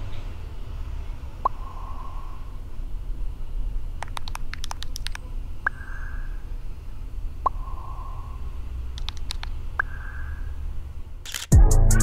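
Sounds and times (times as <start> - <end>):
low steady hum: 0.0 - 12.0
phone keyboard typing clicks: 4.0 - 6.1, 9.0 - 10.2.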